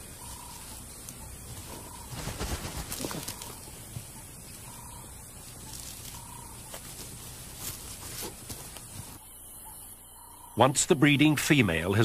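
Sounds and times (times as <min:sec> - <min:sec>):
paws scraping dry dirt: 0:05.5 - 0:09.2.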